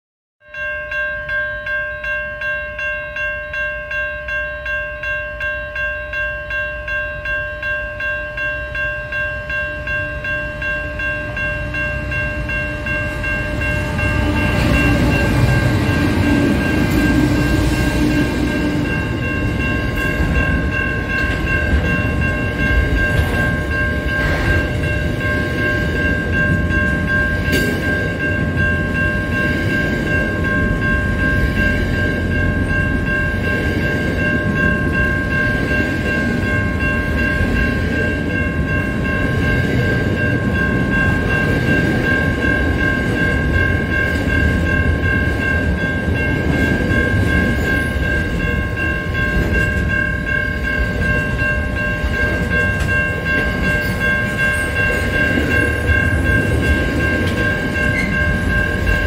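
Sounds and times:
crossing warning bell dinging: 0:00.4 - 0:59.0
diesel locomotive rumble: 0:11.3 - 0:59.0
train wheel clunks: 0:13.5 - 0:28.6.

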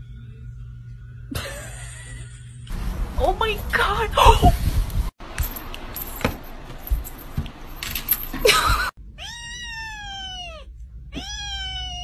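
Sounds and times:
kitten meowing: 0:09.2 - 0:12.0.

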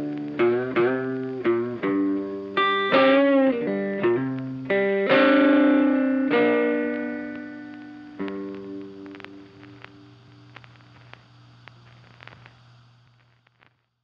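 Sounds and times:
guitar plucking a melody: 0:00.0 - 0:11.1.

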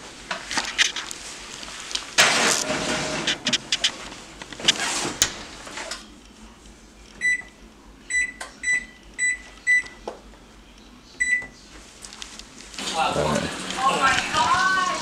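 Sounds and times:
microwave keypad beeps: 0:07.2 - 0:07.5, 0:08.1 - 0:10.0, 0:11.2 - 0:11.6.

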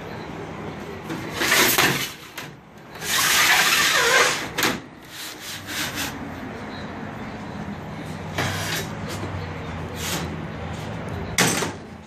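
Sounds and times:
steel sheets scraping: 0:01.2 - 0:06.3, 0:08.3 - 0:09.2.

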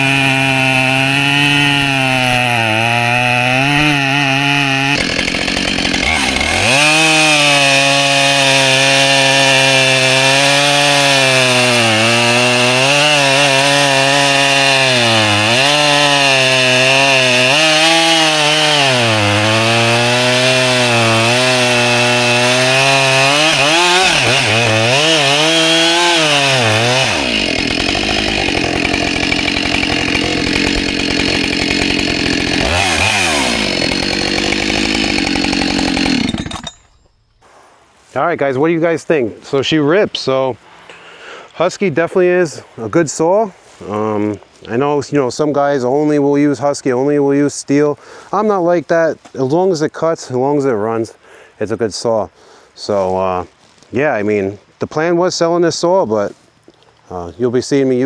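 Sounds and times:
chainsaw cutting log: 0:00.0 - 0:36.9.

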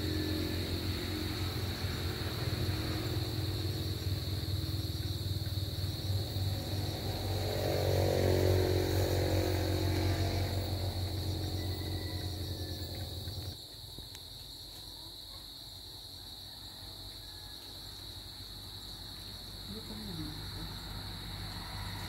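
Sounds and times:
vehicle passing: 0:00.0 - 0:13.6, 0:19.5 - 0:22.0
highway traffic rumble: 0:00.0 - 0:13.7, 0:19.2 - 0:22.0
high insect drone: 0:00.0 - 0:22.0.

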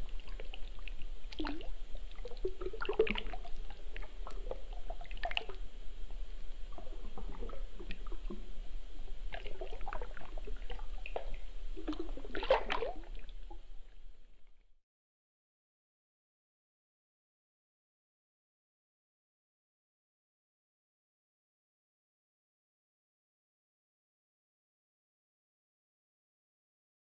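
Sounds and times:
wet drips and squishes: 0:00.2 - 0:05.6, 0:09.3 - 0:13.3.

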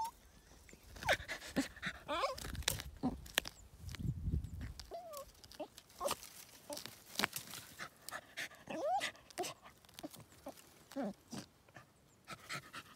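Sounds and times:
dog whining: 0:02.0 - 0:02.5, 0:04.9 - 0:06.2, 0:08.7 - 0:09.6, 0:10.9 - 0:11.5
wood cracking and scraping: 0:02.3 - 0:07.8
dog panting: 0:11.7 - 0:12.9.

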